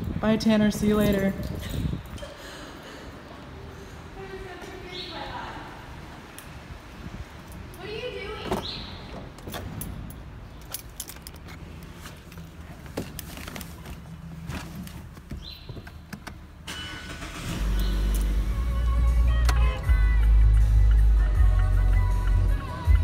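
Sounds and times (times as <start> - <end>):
keys jingling: 9.4 - 12.6
clicks and handling noises: 9.4 - 16.4
music with heavy bass beat: 18.9 - 23.0.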